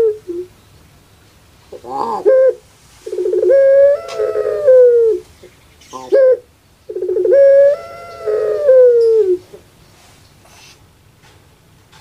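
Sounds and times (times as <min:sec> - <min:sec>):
dove cooing: 0:00.0 - 0:00.6, 0:01.7 - 0:09.6.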